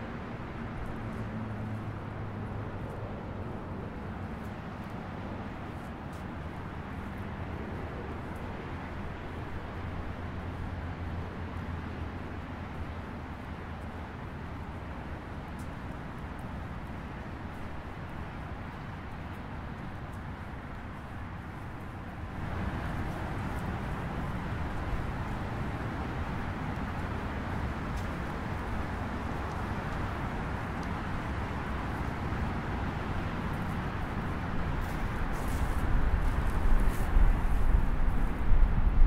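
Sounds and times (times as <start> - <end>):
road traffic hum: 0.0 - 39.0
wind rushing through trees: 0.0 - 39.0
wind gusts buffeting microphone: 19.9 - 39.0.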